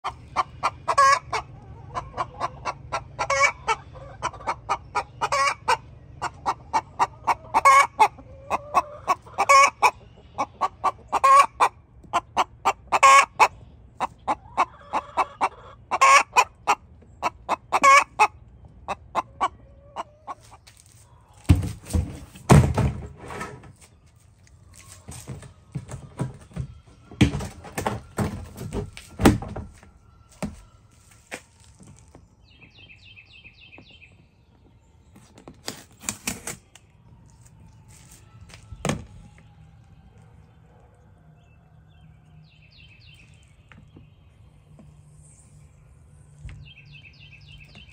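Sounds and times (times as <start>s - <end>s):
chicken cackling loudly: 0.0s - 20.6s
chickens clucking: 0.0s - 36.6s
plastic tote knocks and scrapes: 21.4s - 23.8s, 25.1s - 29.8s.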